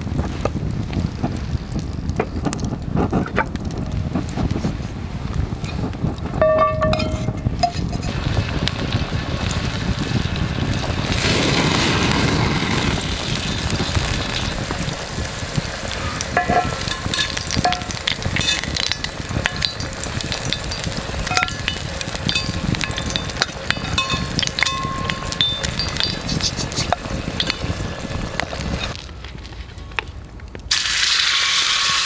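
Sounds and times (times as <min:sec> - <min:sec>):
oil popping and crackling: 0:00.0 - 0:32.0
garlic sizzling in oil: 0:06.7 - 0:29.0, 0:30.7 - 0:32.0.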